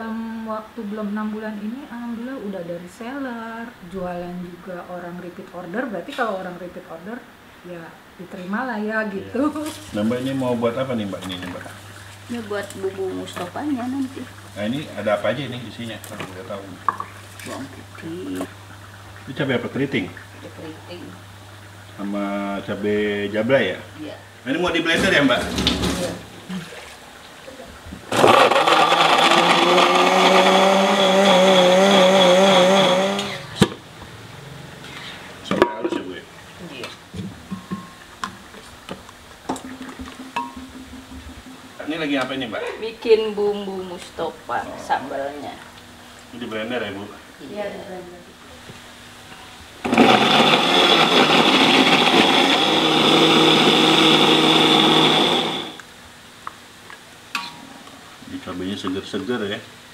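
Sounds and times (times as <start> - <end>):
blender motor whining: 28.1 - 33.6, 49.8 - 55.8.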